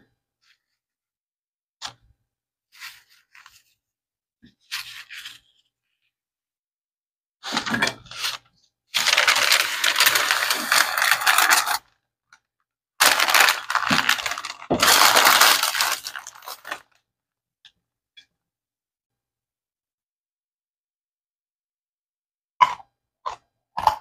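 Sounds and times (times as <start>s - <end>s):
cornstarch chunks crunching: 9.0s - 11.8s, 13.0s - 16.8s
parchment paper crinkling: 9.0s - 11.8s, 13.0s - 16.8s.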